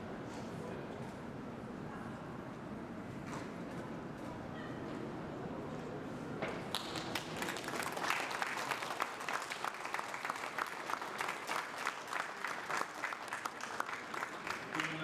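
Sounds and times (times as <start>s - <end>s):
audience applauding: 6.7s - 15.0s.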